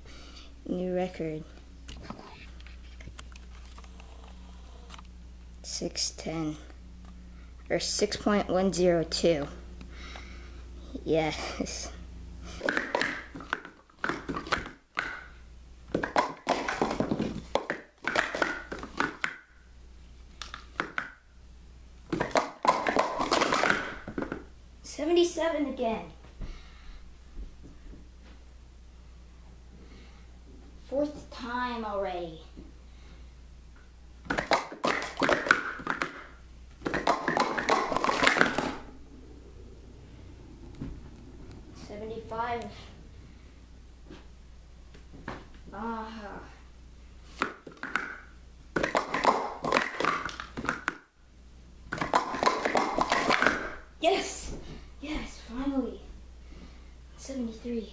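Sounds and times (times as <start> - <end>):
plastic cups clattering on mat: 12.6 - 15.2, 15.9 - 19.4, 22.1 - 24.5, 34.3 - 38.8, 47.4 - 51.0, 51.9 - 53.7
hands slapping timer pad: 12.6 - 15.3, 15.9 - 19.5, 20.4 - 21.2, 22.1 - 24.4, 34.2 - 38.8, 47.3 - 51.1, 51.9 - 53.7
plastic cups clattering: 22.2 - 24.4, 34.3 - 36.2, 36.8 - 38.8.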